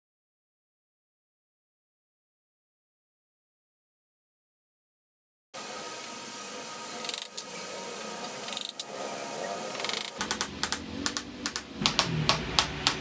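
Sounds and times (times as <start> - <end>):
small hammer tapping metal pin: 10.2 - 13.0.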